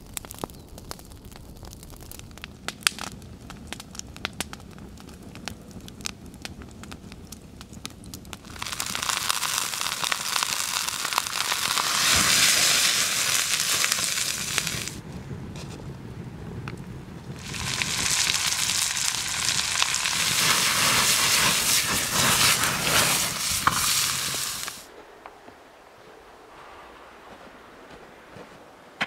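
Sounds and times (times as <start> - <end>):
wood fire crackling and popping: 0.0 - 24.9
steak sizzling in a hot pan: 8.5 - 15.0, 17.4 - 24.8.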